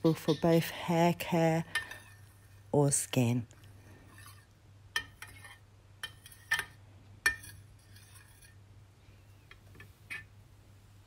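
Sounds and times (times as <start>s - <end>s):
metal spoon clinking in pot: 1.6s - 2.3s, 4.1s - 8.6s.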